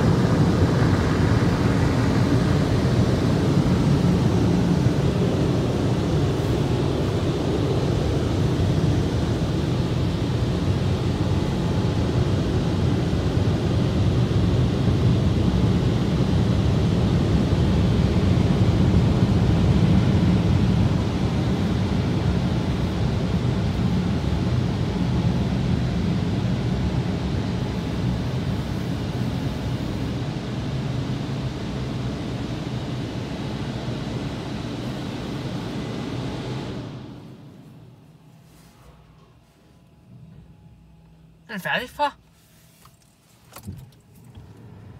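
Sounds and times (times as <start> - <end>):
car wash rushing noise: 0.0 - 37.8.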